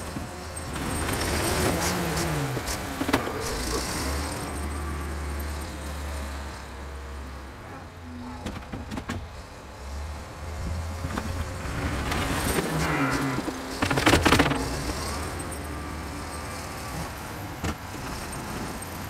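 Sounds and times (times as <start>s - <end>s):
tractor loader engine running: 0.0s - 19.0s.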